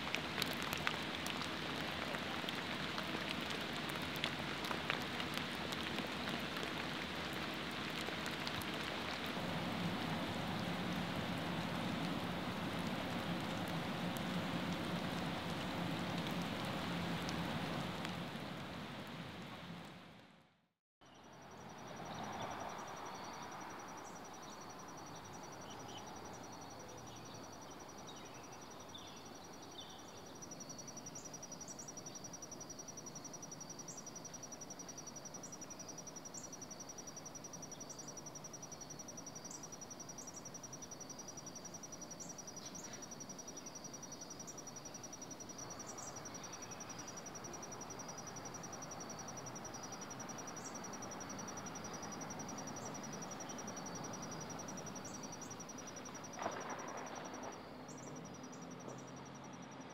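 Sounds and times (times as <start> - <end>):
insects trilling: 0.0 - 19.6, 21.0 - 59.9.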